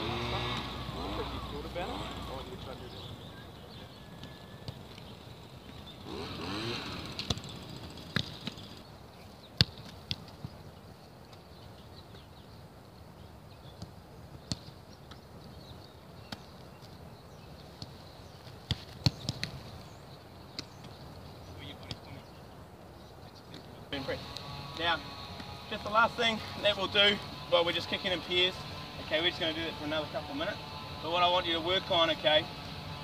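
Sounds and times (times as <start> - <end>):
vehicle passing: 0.0 - 3.0, 6.0 - 8.8.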